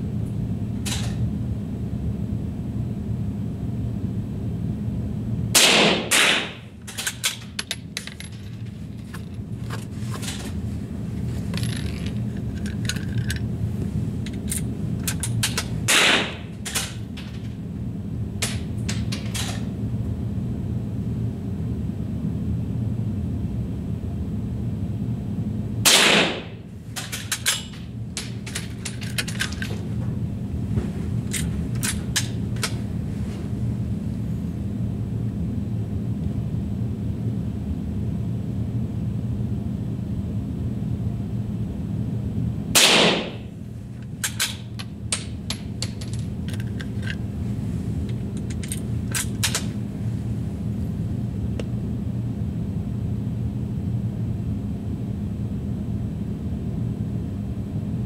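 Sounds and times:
steady low hum: 0:00.0 - 0:58.0
rifle shots with echo: 0:05.6 - 0:06.6, 0:15.9 - 0:16.4, 0:25.9 - 0:26.5, 0:42.8 - 0:43.4.

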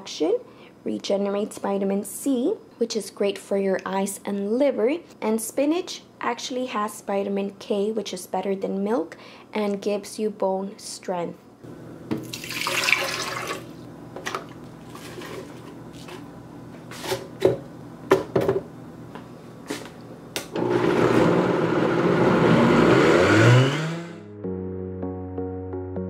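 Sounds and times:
water pouring into blender jar: 0:12.2 - 0:13.7
blender motor rising in pitch: 0:20.5 - 0:24.3.

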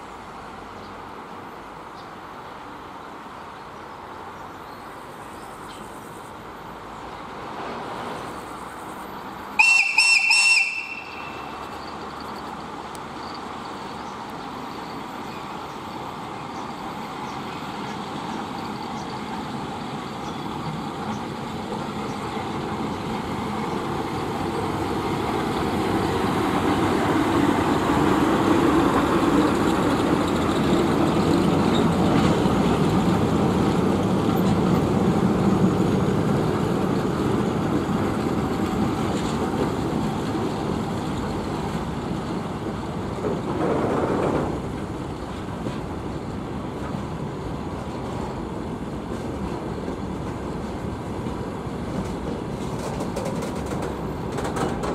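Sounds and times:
freight train rolling past: 0:00.0 - 0:54.9
high-pitched locomotive whistle: 0:09.6 - 0:11.6.

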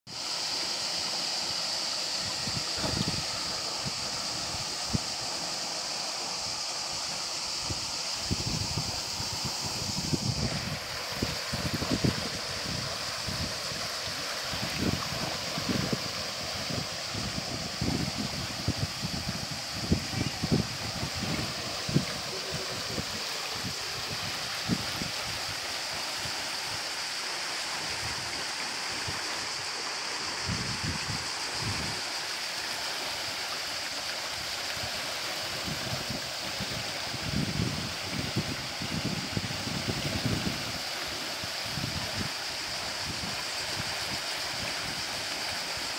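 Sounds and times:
river rushing over rocks: 0:00.1 - 0:45.9.

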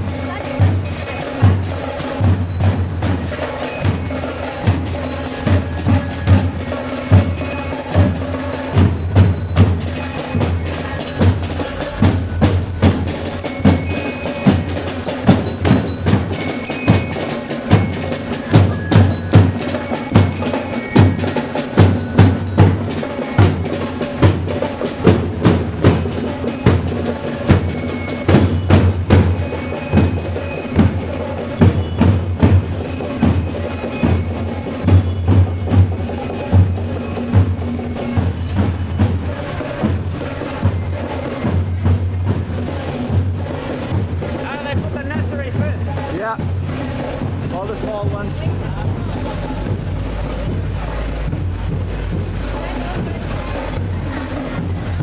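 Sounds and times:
bass drum and snare drums: 0:00.0 - 0:55.0
ringing glockenspiel notes: 0:00.0 - 0:55.0.

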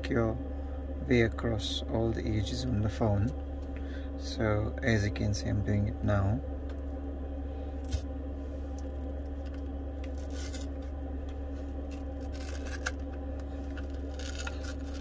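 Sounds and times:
steady low hum: 0:00.0 - 0:15.0
plastic tool scraping: 0:11.9 - 0:15.0.

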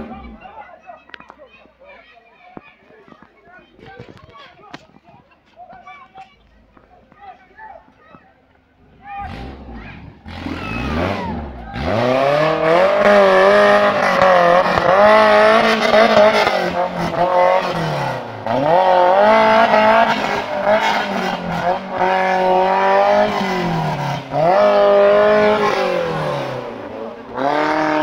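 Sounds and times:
engine revving hard: 0:09.2 - 0:28.0.

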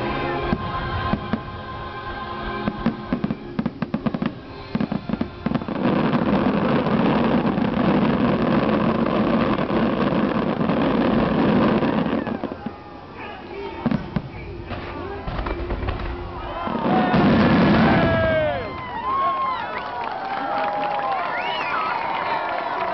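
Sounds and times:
music playing: 0:00.0 - 0:08.2
crackling firework barrage: 0:00.0 - 0:20.8
firework bangs: 0:02.6 - 0:19.6.

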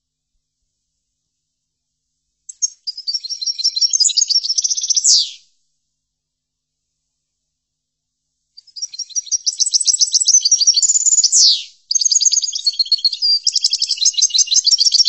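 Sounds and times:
finch twittering song: 0:02.5 - 0:05.4, 0:08.6 - 0:15.0.

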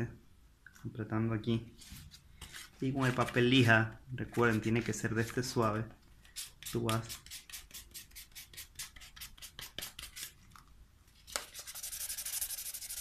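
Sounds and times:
sandpaper rasping on paper edges: 0:06.4 - 0:10.3, 0:11.6 - 0:13.0.

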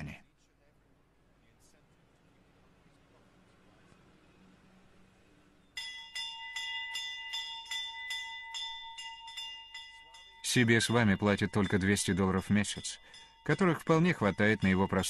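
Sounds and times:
small bell ringing: 0:05.7 - 0:15.0.

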